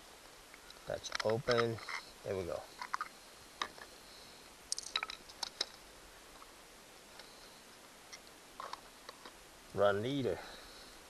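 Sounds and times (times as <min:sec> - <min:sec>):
clicks of small plastic parts: 0:04.7 - 0:05.8.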